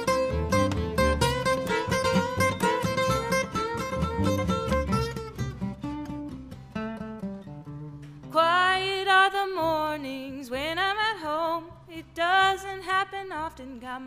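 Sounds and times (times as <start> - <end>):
acoustic string band playing: 0.0 - 5.3
sliding fiddle melody: 0.0 - 5.4.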